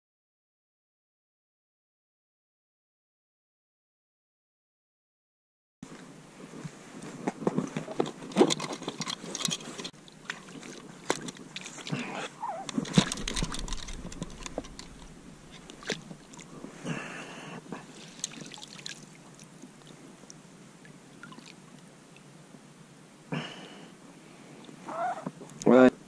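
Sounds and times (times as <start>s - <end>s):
soft water lapping: 9.0s - 22.4s
water splashing: 9.3s - 16.9s, 17.8s - 20.0s.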